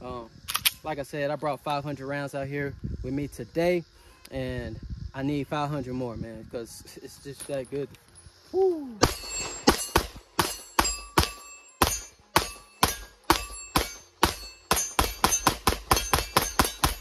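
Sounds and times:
pistol shots: 9.0 - 17.0.

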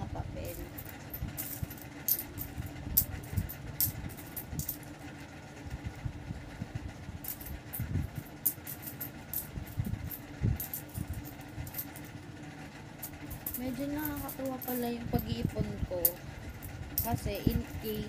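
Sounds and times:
steady low hum: 0.0 - 18.0
coins clinking: 0.4 - 4.8, 7.2 - 12.1, 13.0 - 15.4.

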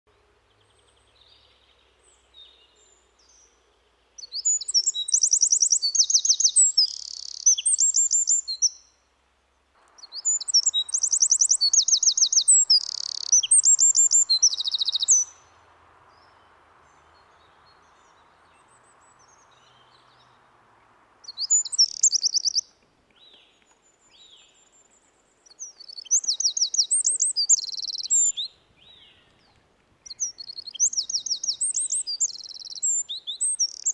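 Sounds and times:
wren singing trills: 4.2 - 9.0, 10.0 - 15.6, 21.2 - 23.4, 25.4 - 33.9.

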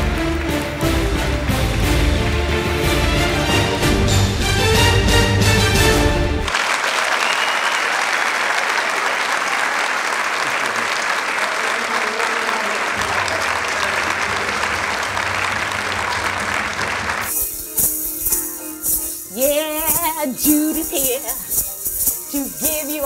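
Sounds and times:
audience applauding: 0.0 - 4.1, 6.4 - 17.4.

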